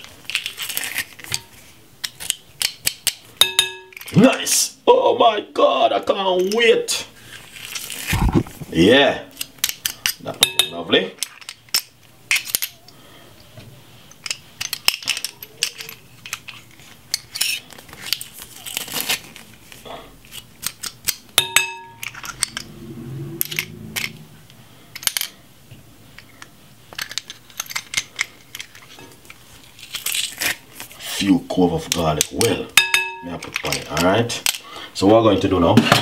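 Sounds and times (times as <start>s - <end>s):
ringing clink: 3.4s - 4.1s, 10.4s - 10.8s, 21.4s - 22.4s, 32.8s - 33.3s.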